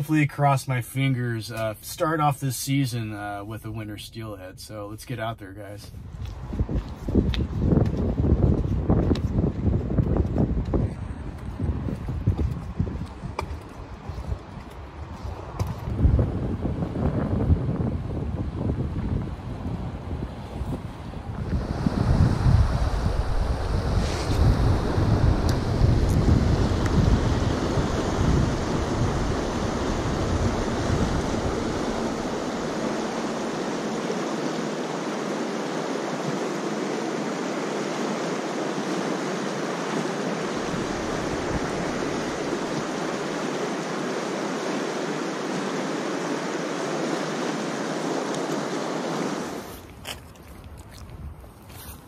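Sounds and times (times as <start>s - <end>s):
wind buffeting microphone: 5.8s - 52.0s
river water rushing: 21.4s - 49.9s.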